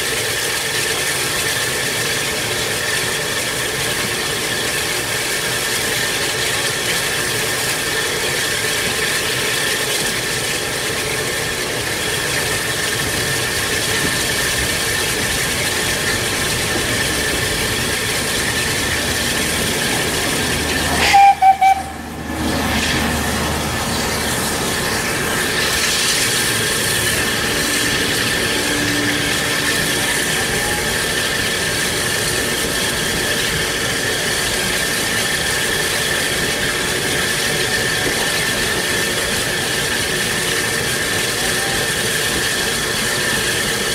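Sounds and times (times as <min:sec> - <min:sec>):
hiss of steam: 0:00.0 - 0:43.9
train rumbling past: 0:00.0 - 0:43.9
loud steam whistle blast: 0:20.8 - 0:22.2, 0:25.6 - 0:31.7.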